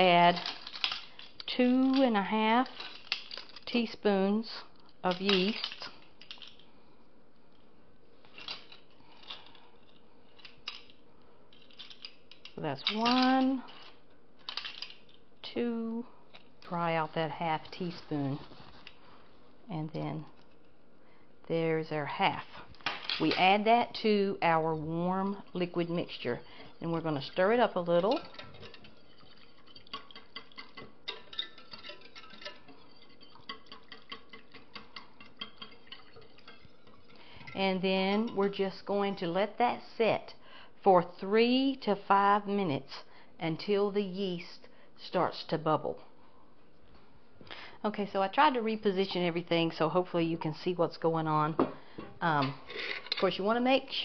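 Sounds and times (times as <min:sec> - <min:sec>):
metal utensil clinking in saucepan: 0:24.4 - 0:38.6.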